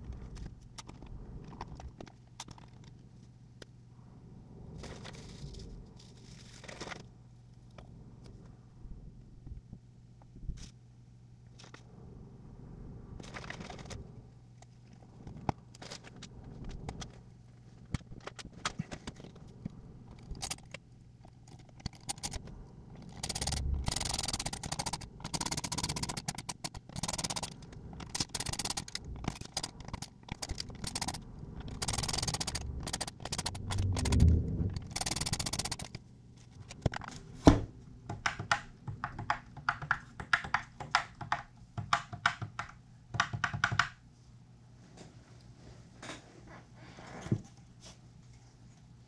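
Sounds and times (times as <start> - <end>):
parts scraping and rustling: 4.7 - 7.2, 13.2 - 37.5
screwdriver turning screws into plastic: 23.1 - 34.2.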